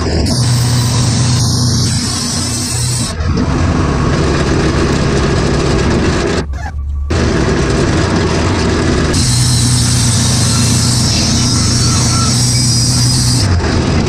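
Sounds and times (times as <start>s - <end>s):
band saw blade cutting: 0.0s - 3.5s, 9.1s - 13.6s
sawmill engine humming: 0.0s - 14.0s.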